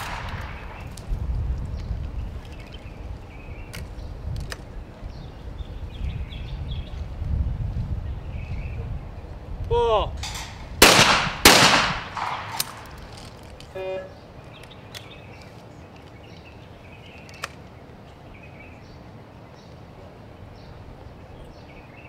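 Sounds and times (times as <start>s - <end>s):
shotgun shots with echo: 0.0s - 0.9s, 10.3s - 12.9s
low outdoor background: 0.0s - 22.0s.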